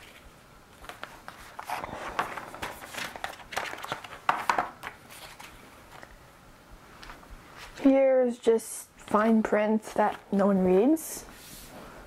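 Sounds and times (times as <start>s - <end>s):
paper rustling: 0.0s - 6.1s.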